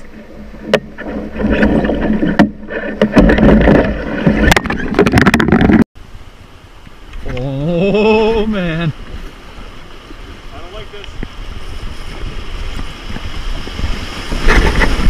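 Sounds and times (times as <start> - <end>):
canoe knocks and bumps: 0.0 - 5.9
white water rushing: 6.0 - 15.0.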